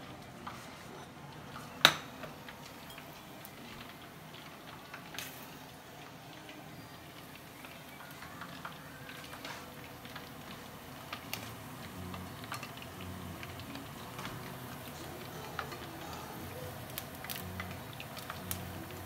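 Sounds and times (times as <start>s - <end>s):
oil sizzling in a pot: 0.0s - 19.0s.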